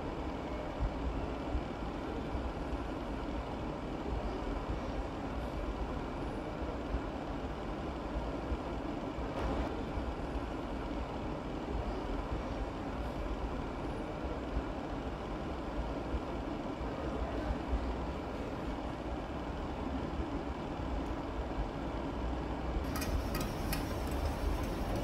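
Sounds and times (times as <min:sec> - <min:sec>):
low machine-like rumbling: 0:21.6 - 0:25.0.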